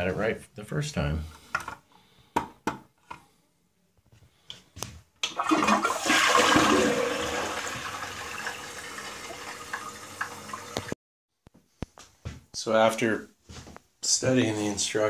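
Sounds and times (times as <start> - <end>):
toilet flushing: 5.2 - 11.0.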